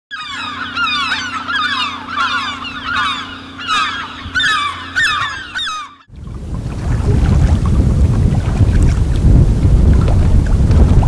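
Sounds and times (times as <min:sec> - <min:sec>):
flock of birds calling: 0:00.1 - 0:06.1
steady low hum: 0:00.1 - 0:11.0.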